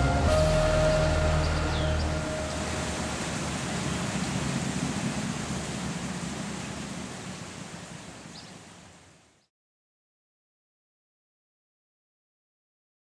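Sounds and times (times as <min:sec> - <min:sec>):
water lapping on riverbank: 0:00.0 - 0:09.4
river rushing: 0:00.0 - 0:09.5.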